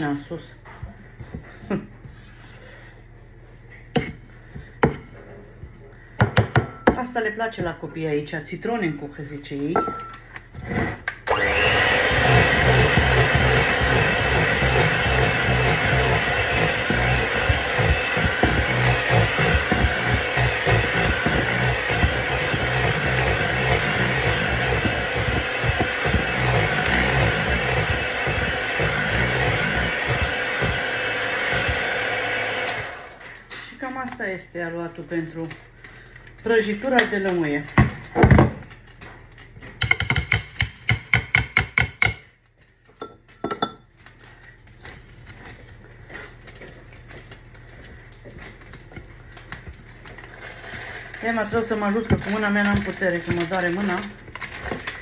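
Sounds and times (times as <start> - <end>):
electric hand mixer running: 11.2 - 33.5
spatula scraping dough in bowl: 11.7 - 32.7.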